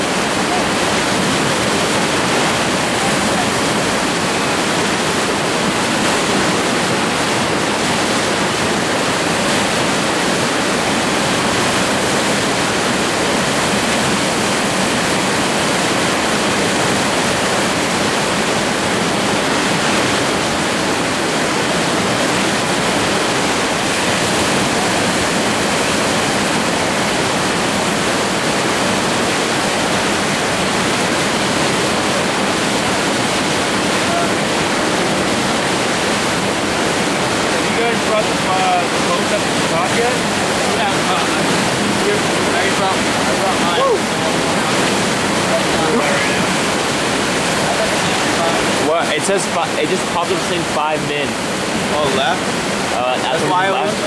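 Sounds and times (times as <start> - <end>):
river rapids rushing: 0.0 - 54.0.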